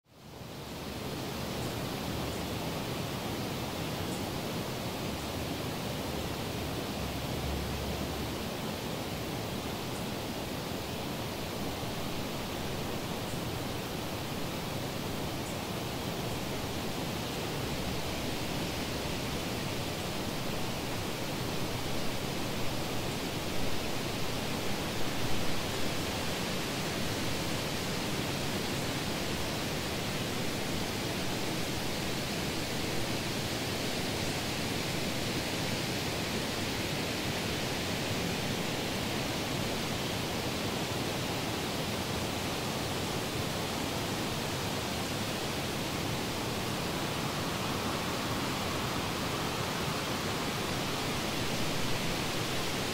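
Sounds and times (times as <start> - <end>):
steady rushing hiss: 0.1 - 52.9.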